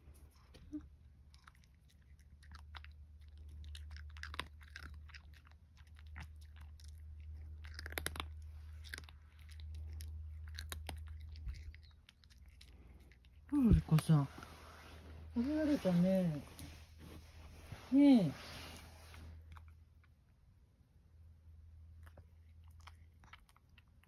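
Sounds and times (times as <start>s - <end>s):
cat crunching dry kibble: 1.1s - 14.2s, 22.0s - 24.0s.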